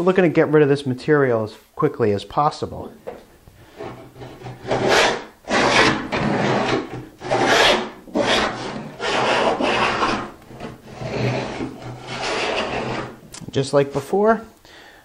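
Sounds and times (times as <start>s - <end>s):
hand plane scraping wood: 3.6s - 13.2s.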